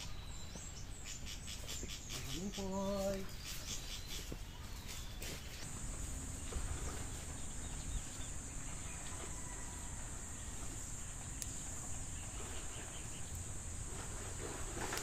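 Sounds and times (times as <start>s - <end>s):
high-pitched insect chorus: 0.0s - 4.4s
low outdoor rumble: 5.6s - 15.0s
light tick: 11.4s - 11.6s.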